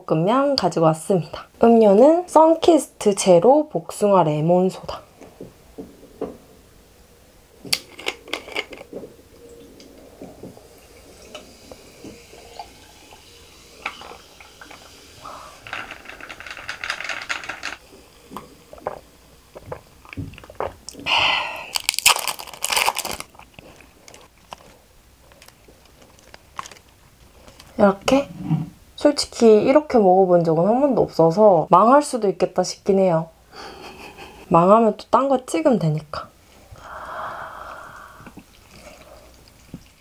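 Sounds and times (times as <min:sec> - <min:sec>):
soda pouring and fizzing: 0:09.5 - 0:21.0.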